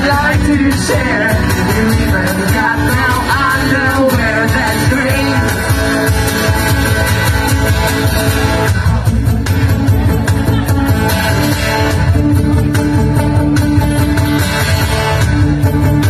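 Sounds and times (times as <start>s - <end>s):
person singing: 0.0s - 6.8s
live rock song on guitar: 0.0s - 16.0s.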